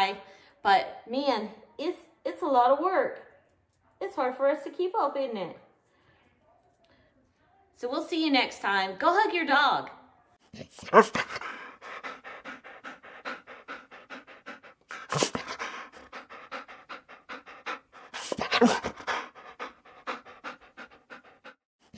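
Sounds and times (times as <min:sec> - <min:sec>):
dog panting: 0:10.5 - 0:21.9.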